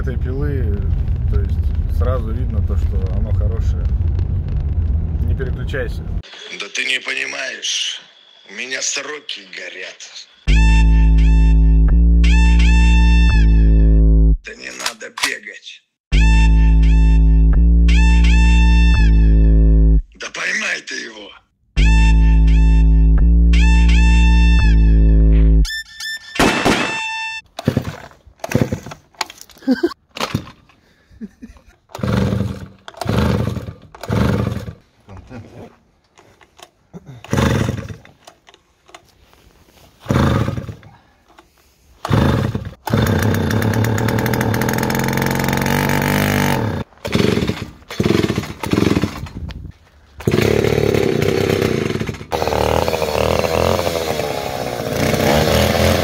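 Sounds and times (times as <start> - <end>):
chainsaw starter pulls: 27.5 - 30.8, 31.8 - 34.8, 36.2 - 39.1, 40.0 - 41.4, 42.0 - 49.5, 50.2 - 56.0
chainsaw engine running: 27.6 - 28.9, 31.9 - 34.8, 40.0 - 40.8, 42.0 - 49.2, 50.2 - 56.0.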